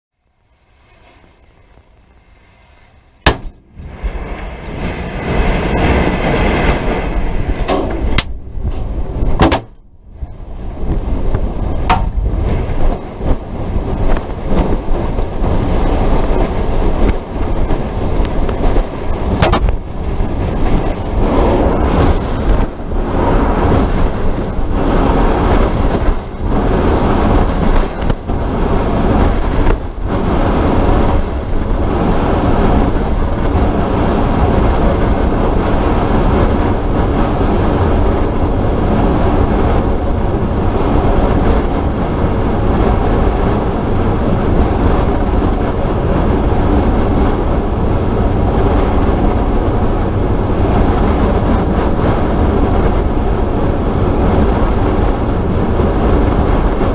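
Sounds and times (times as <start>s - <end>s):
rushing wind noise: 0.2s - 56.9s
sharp bang: 3.2s - 3.9s.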